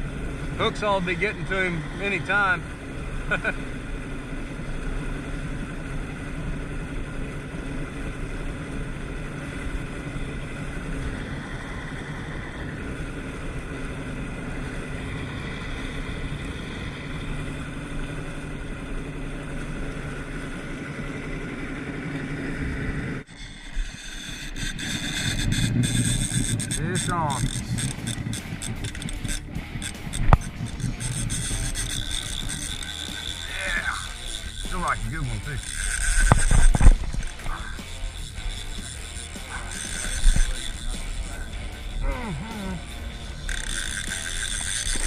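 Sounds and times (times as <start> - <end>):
outboard motor running: 0.0 - 45.0
water churning: 23.2 - 45.0.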